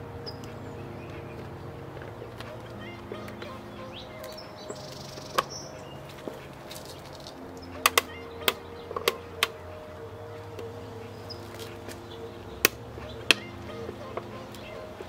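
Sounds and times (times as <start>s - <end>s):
steady low hum: 0.0s - 15.0s
sharp plastic clicks and taps: 4.2s - 9.8s, 12.6s - 14.7s.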